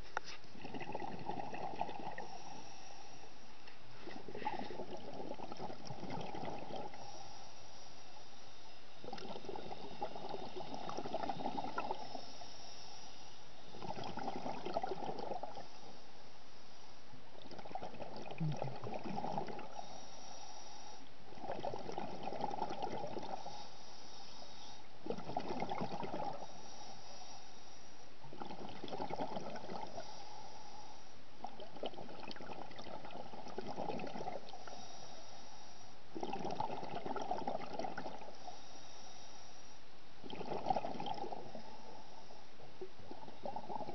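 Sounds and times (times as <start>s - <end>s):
exhaled bubbles underwater: 0.5s - 2.6s, 4.0s - 7.2s, 8.7s - 12.4s, 13.6s - 15.9s, 17.2s - 20.0s, 21.2s - 23.6s, 24.9s - 26.6s, 28.2s - 30.2s, 31.4s - 34.8s, 36.1s - 38.6s, 40.2s - 42.0s, 42.6s - 43.9s
faint high hiss: 1.7s - 25.3s, 26.0s - 28.9s, 29.6s - 31.8s, 34.3s - 43.9s.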